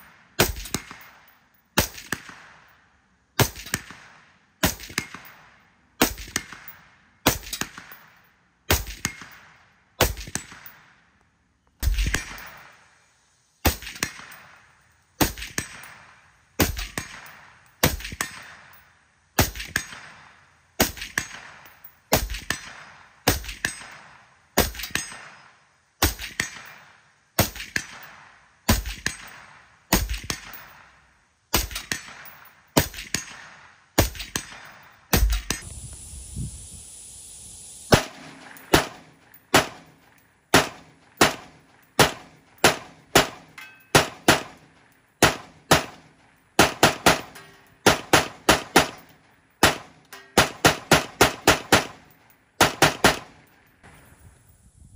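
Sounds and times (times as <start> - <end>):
suppressed rifle shots: 31.5 - 35.6, 37.9 - 53.5.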